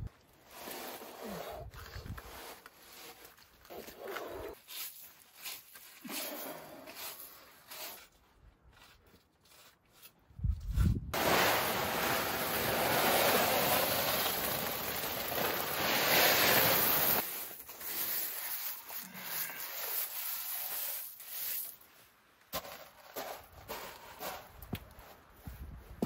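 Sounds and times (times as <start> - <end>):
hands raking gravel: 0.4 - 25.2
gravel pouring from a bag: 11.2 - 21.8.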